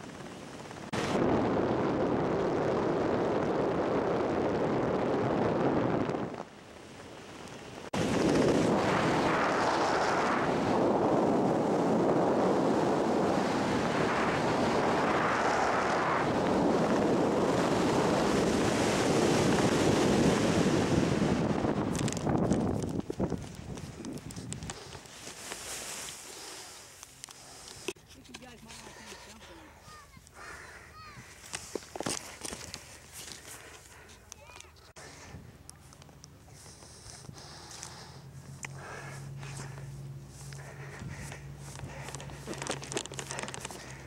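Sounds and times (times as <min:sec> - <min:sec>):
wind rushing over microphone: 0:00.0 - 0:26.2, 0:36.6 - 0:44.0.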